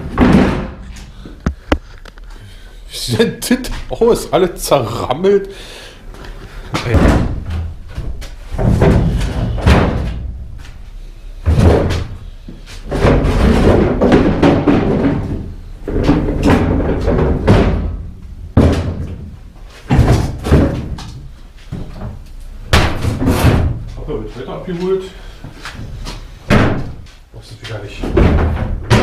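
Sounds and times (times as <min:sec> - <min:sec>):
plastic bins banging together: 0:00.0 - 0:01.9, 0:06.7 - 0:10.8, 0:11.4 - 0:25.0, 0:25.7 - 0:27.1, 0:27.7 - 0:29.0
bins rolling and scraping on floor: 0:00.0 - 0:02.4, 0:06.1 - 0:26.4.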